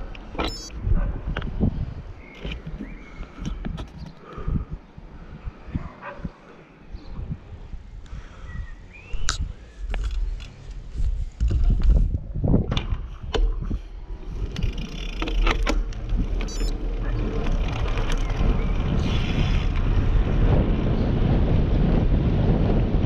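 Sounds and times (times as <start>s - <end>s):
wind on microphone: 0.0s - 23.0s
bicycle clicks and knocks: 2.2s - 4.5s, 9.3s - 20.0s.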